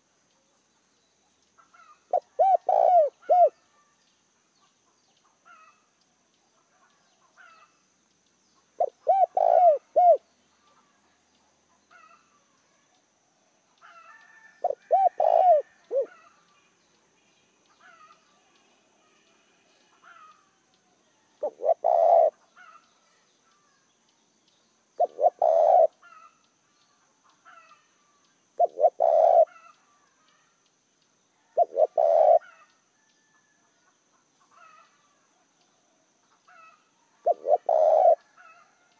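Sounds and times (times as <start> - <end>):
small birds chirping: 0.0 - 33.0, 33.8 - 38.9
dove cooing: 1.8 - 3.6, 8.8 - 10.2, 13.9 - 16.3, 21.4 - 22.8, 25.0 - 26.3, 28.6 - 29.7, 31.5 - 32.7, 36.5 - 38.7.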